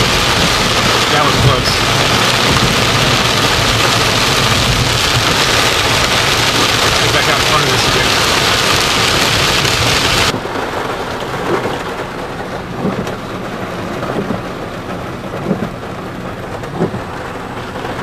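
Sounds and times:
heavy rain on a car: 0.0 - 18.0
light rain pattering on car: 0.0 - 18.0
windshield wipers thumping: 0.0 - 18.0.

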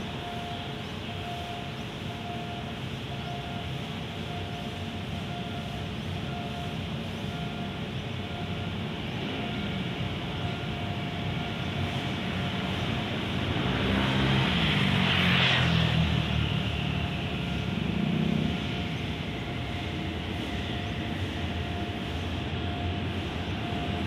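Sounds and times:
traffic rumble: 0.0 - 24.0
passing vehicle engine: 11.9 - 24.0.

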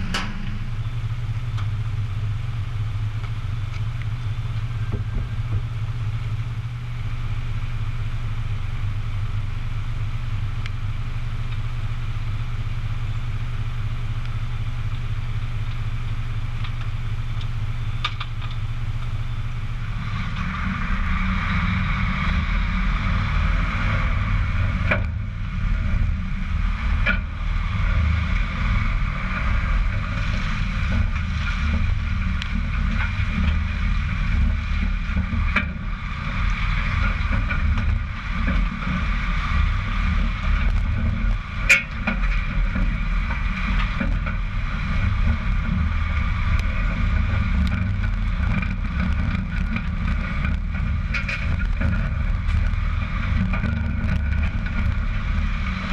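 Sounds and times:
trailer knocking: 0.0 - 6.0
diesel engine idling: 0.0 - 55.9
low engine rumble: 0.0 - 55.9
tyres on wet asphalt: 0.0 - 55.9.

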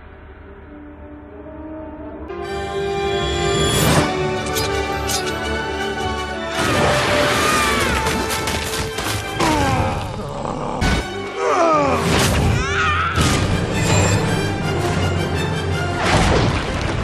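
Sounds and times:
dramatic orchestral music: 0.0 - 17.0
debris smashing impacts: 6.6 - 9.7.

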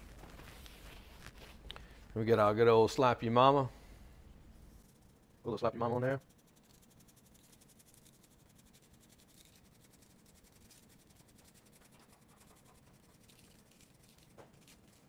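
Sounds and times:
seasoning shaker rattling: 4.8 - 15.0.

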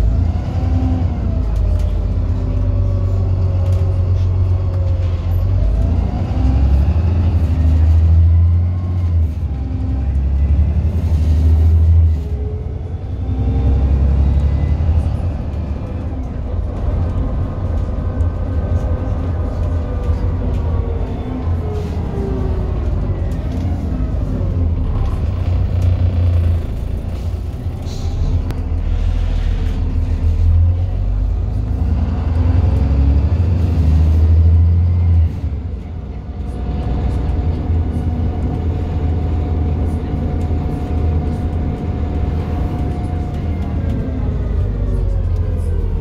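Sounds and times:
bus engine running under load: 0.0 - 46.0.

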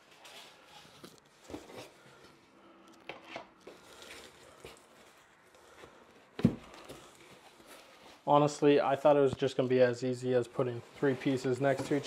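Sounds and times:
cardboard and packing rustling: 0.0 - 2.5, 3.1 - 8.6, 10.6 - 12.0.

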